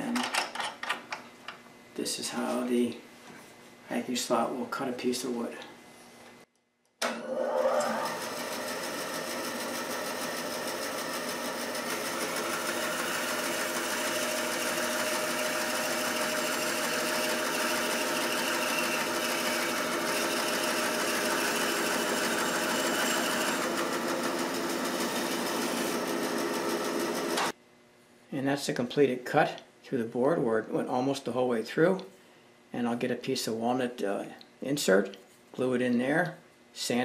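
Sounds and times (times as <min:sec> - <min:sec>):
band saw cutting wood: 0:07.1 - 0:27.5.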